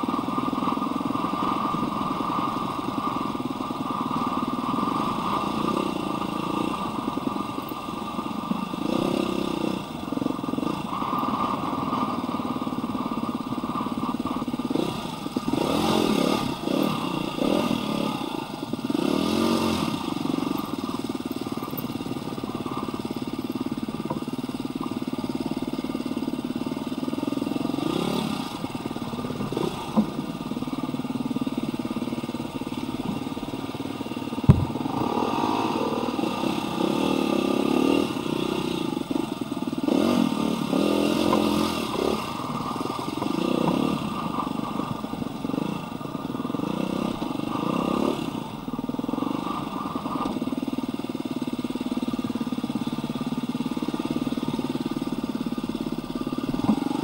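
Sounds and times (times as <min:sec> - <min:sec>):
dirt bike engine revving: 0:14.7 - 0:20.7, 0:27.4 - 0:30.8, 0:32.6 - 0:44.3
sharp knocks: 0:34.5 - 0:35.1.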